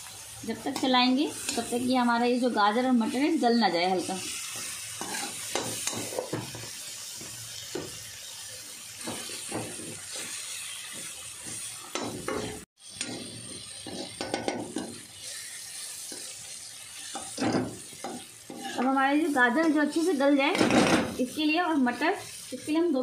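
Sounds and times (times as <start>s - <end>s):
frying sizzle: 0.0s - 23.0s
metal spatula scraping a pan: 3.9s - 6.5s, 9.0s - 20.6s.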